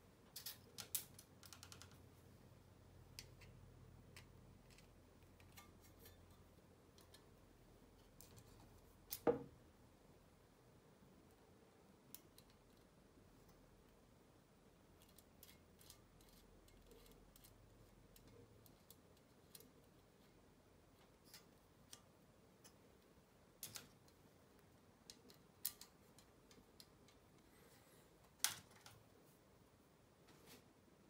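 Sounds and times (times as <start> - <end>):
small metal parts clicking: 0.3 - 2.0, 15.0 - 19.8, 23.6 - 24.2, 25.1 - 27.2.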